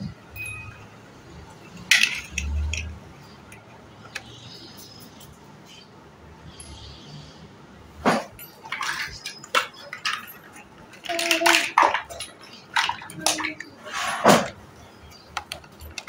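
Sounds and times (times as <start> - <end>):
plastic blocks clacking: 1.6 - 4.4, 8.3 - 14.6, 15.2 - 16.0.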